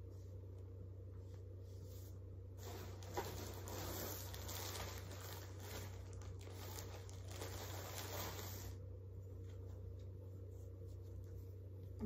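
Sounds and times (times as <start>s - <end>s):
plastic packaging crinkling: 2.6s - 8.8s.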